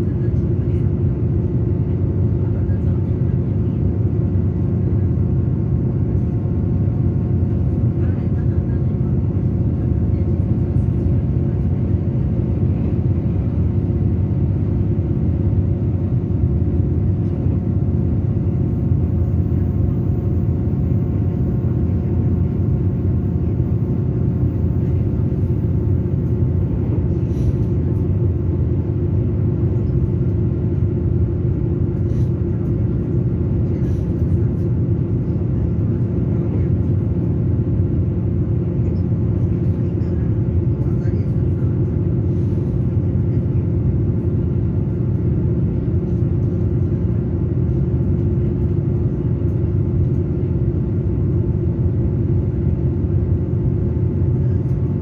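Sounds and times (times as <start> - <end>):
train running rumble: 0.0 - 55.0.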